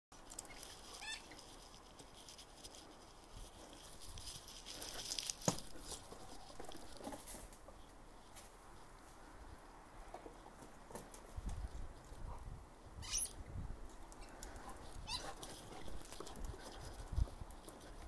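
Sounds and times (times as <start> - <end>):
squeaky ball squeak: 0.5 - 1.3, 13.0 - 13.4.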